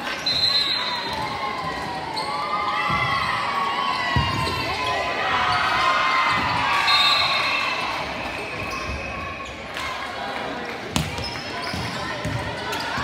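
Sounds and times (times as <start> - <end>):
players' voices: 0.0 - 13.0
sneakers squeaking on wooden floor: 11.0 - 13.0.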